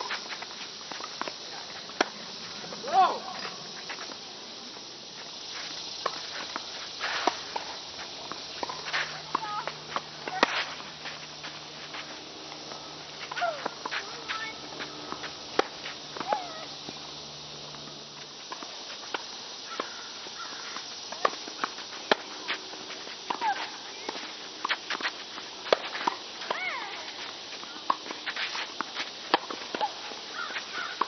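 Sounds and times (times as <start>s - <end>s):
tennis ball hit by rackets: 6.0s - 10.9s, 13.3s - 16.6s, 19.8s - 27.0s, 29.3s - 31.0s
tennis ball bouncing: 6.0s - 11.2s, 12.5s - 17.0s, 18.5s - 27.1s, 27.7s - 31.0s.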